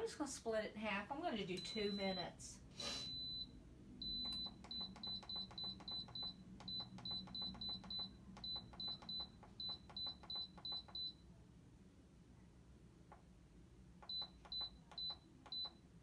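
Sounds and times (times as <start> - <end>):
short high beeps: 3.0 - 11.1.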